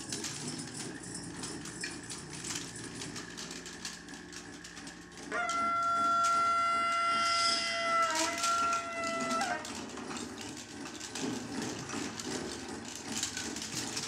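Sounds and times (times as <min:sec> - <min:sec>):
hand percussion clicks and rattles: 0:00.0 - 0:14.0.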